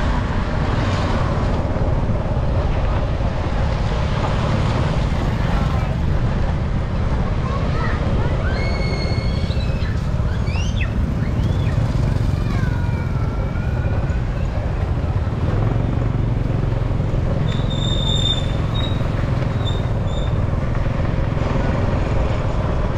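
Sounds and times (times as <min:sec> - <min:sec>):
traffic rumble: 0:00.0 - 0:22.9.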